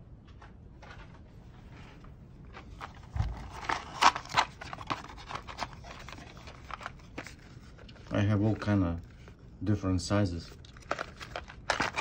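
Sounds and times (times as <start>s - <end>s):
plastic connectors clicking and scraping: 10.6s - 12.0s.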